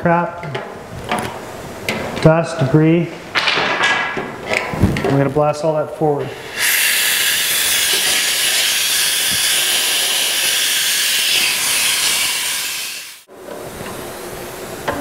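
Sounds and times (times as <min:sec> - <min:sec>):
compressed air hissing in duct: 0:06.2 - 0:13.3.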